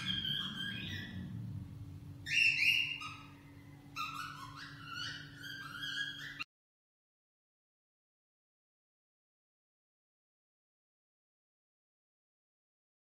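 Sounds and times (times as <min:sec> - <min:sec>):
cockatiel whistling: 0:00.0 - 0:01.2, 0:02.2 - 0:06.5.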